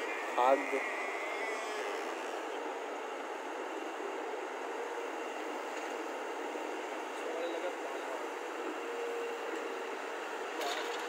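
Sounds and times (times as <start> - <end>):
excavator diesel engine running: 0.0 - 11.0.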